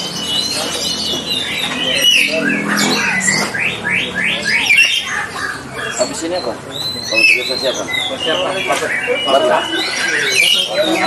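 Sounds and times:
bird sweeping notes: 1.3 - 5.6.

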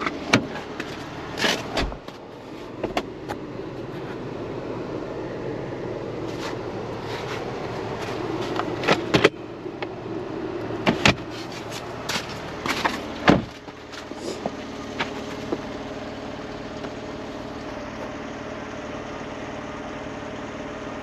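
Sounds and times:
car door shutting: 0.0 - 4.2, 6.2 - 9.9, 10.8 - 15.7
car engine idling: 0.0 - 21.0.

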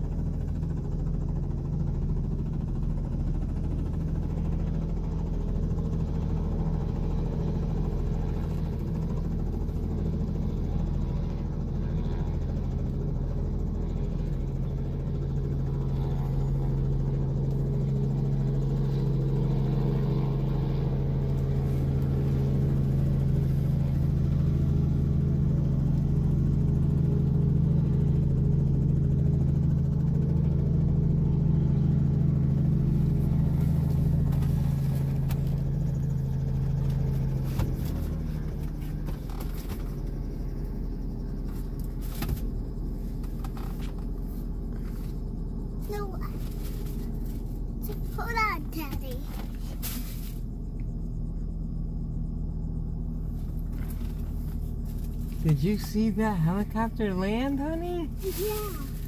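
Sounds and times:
helicopter engine and rotor drone: 0.0 - 59.0.

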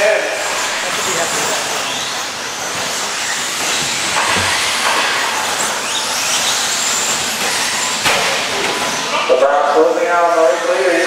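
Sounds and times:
rising motor whines: 0.0 - 11.0
rc truck motors and tyres hissing: 0.4 - 9.1.

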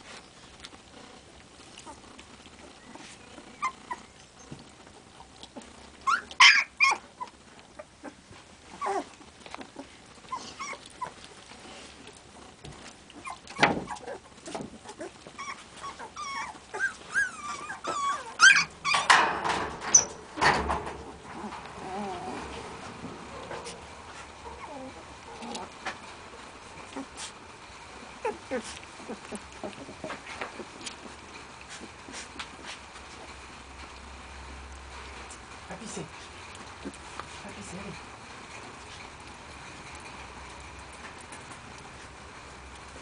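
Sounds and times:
puppies whimpering and squealing: 1.6 - 5.4, 6.0 - 12.0, 13.0 - 20.2, 21.3 - 22.7, 23.4 - 25.8, 26.7 - 32.3.

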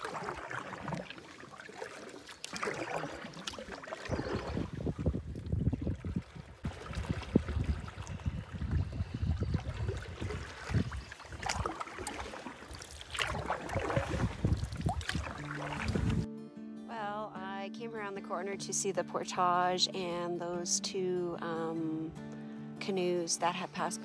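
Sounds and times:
water lapping around canoe: 0.0 - 16.3
wind buffeting microphone: 4.1 - 11.6, 13.2 - 16.3
background music: 15.5 - 24.0.

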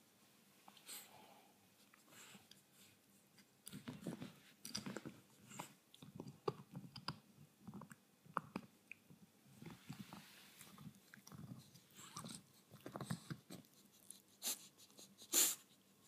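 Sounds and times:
puppy gnawing antler chew: 3.7 - 14.2.

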